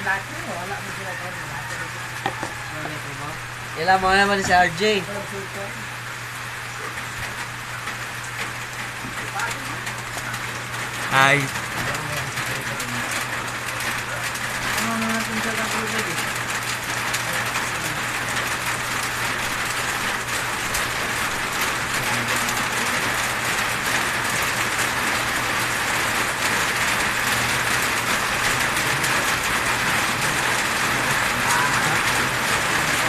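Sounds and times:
constant hiss: 0.0s - 33.0s
electric hair clippers buzzing: 2.2s - 3.0s.

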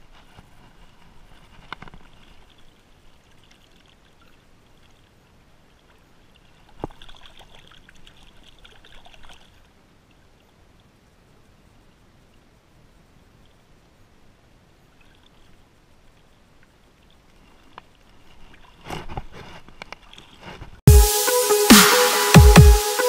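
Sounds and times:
water lapping among rocks: 0.2s - 10.4s, 14.9s - 20.8s.

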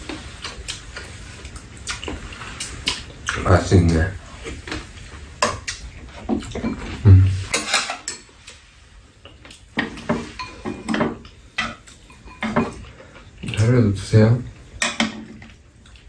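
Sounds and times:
utensils clinking against bowls: 6.3s - 8.4s, 9.8s - 13.7s, 14.8s - 15.6s.

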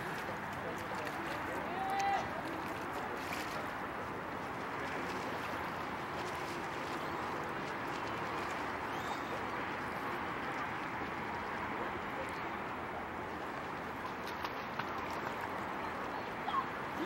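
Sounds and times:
paddle splashing in water: 0.0s - 17.0s
water lapping at shore: 0.0s - 17.0s.

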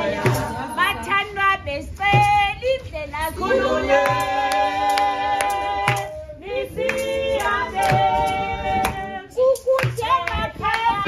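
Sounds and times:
women singing together: 0.0s - 11.0s
hand claps: 0.2s - 0.6s, 4.0s - 6.1s, 6.8s - 11.0s.

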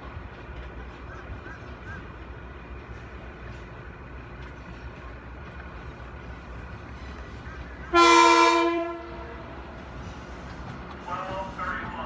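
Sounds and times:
train rumbling: 0.0s - 12.0s
train horn blast: 7.9s - 9.4s.

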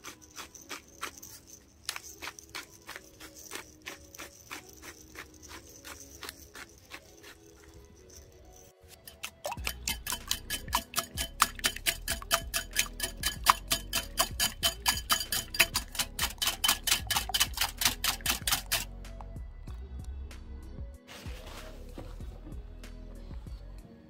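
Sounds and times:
whisk clicking against glass bowl: 9.0s - 18.9s.

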